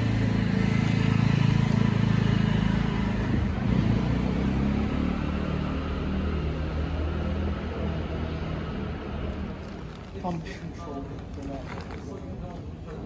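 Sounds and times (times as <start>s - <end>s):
vehicle engine passing close by: 0.0s - 8.8s
low traffic rumble: 0.0s - 13.0s.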